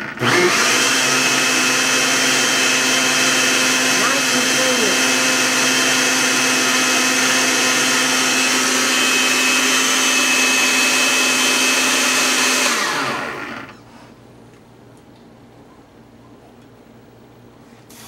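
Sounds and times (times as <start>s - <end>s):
blender motor running: 0.0s - 13.8s.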